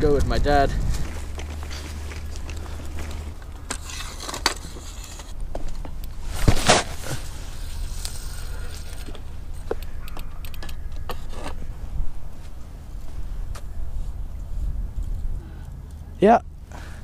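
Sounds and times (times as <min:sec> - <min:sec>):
low rumble on microphone: 0:00.0 - 0:05.2, 0:11.2 - 0:16.2
loud rustle: 0:06.2 - 0:09.3.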